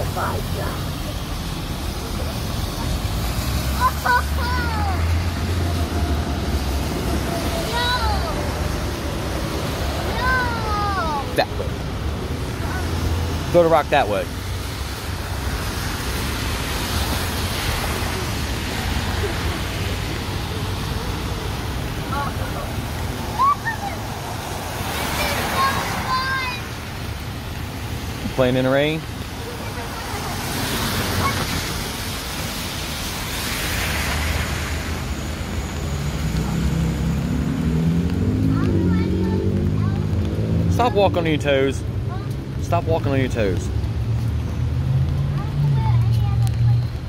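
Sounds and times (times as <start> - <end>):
rain hissing: 0.0 - 47.0
tyres on wet pavement: 0.0 - 47.0.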